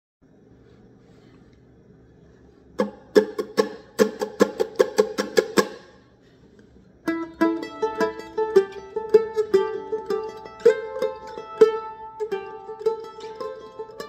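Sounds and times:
mandolin picking: 2.8 - 5.9, 7.0 - 14.0.

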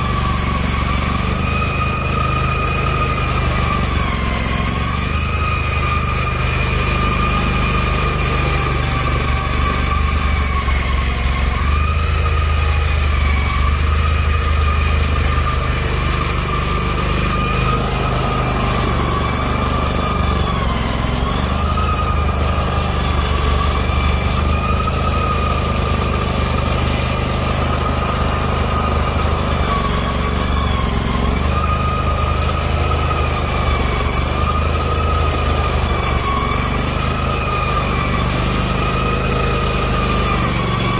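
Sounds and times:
engine low rumble: 0.0 - 40.9
steady high whine: 12.7 - 34.9.

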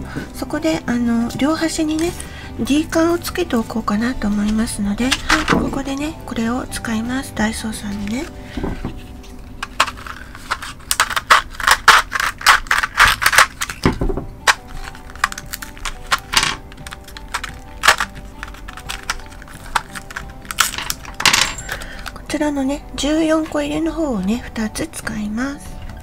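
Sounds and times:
soft background music: 0.0 - 26.0
plastic packaging crinkling: 7.5 - 22.4
metal rings clicking and clinking: 14.5 - 22.2.

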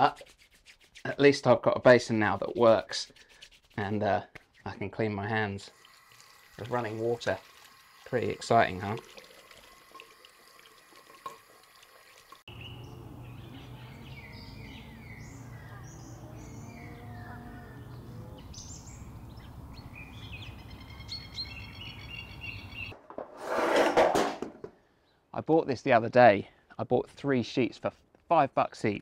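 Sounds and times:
tap running into basin: 5.7 - 12.4
birds chirping: 12.5 - 23.0.

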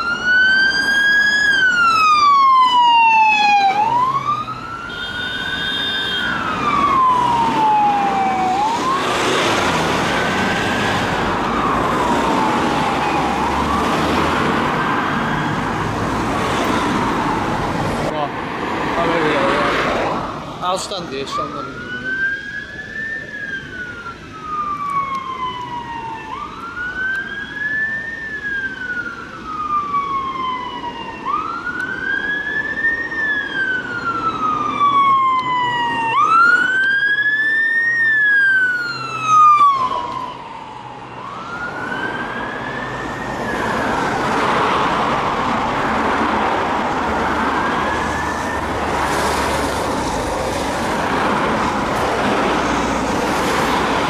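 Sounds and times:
ambulance siren wailing: 0.0 - 18.2, 20.7 - 54.0
heavy road traffic: 0.0 - 54.0.

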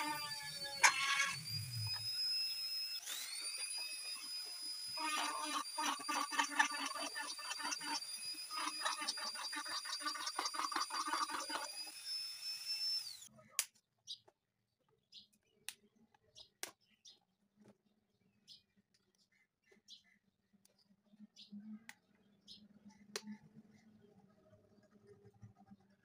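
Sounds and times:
grinder bit cutting plastic: 0.0 - 13.3
rotary grinder motor whining: 0.0 - 13.3.

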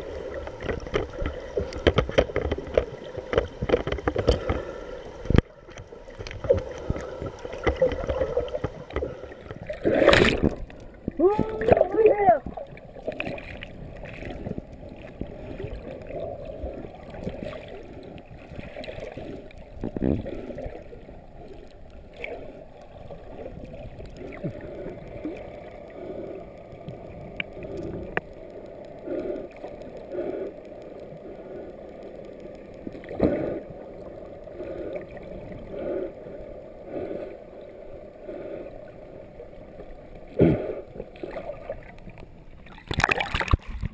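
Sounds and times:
underwater water sloshing: 0.0 - 43.9
dull thumps underwater: 0.6 - 4.6, 6.4 - 9.2.

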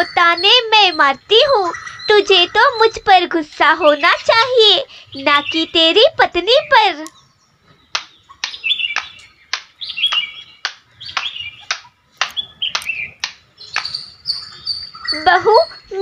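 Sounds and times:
small songbirds chirping: 0.0 - 16.0.

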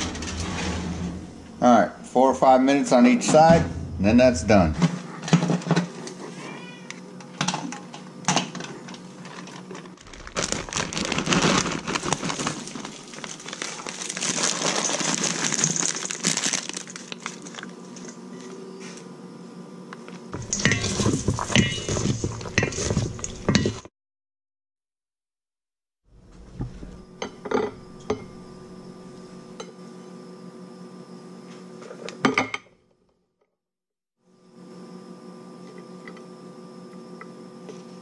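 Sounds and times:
rustling and crinkling: 9.2 - 18.2, 20.4 - 23.8.

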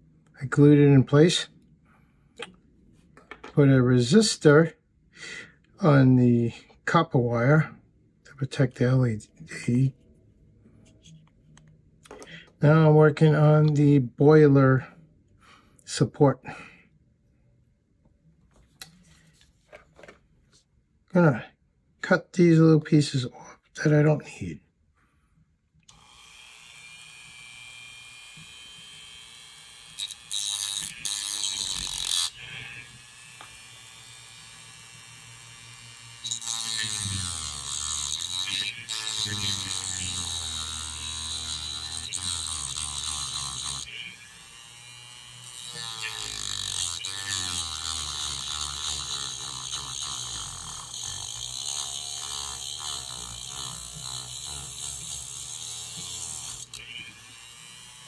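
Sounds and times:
rotary tool grinding: 25.9 - 58.0.

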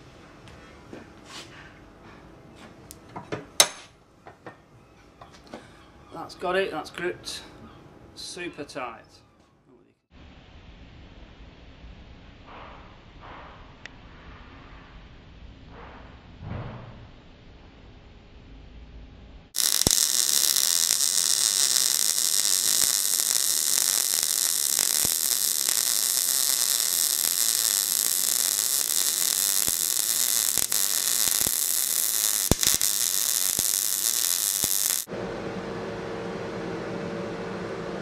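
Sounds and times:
arc welding crackling hiss: 19.5 - 35.1.

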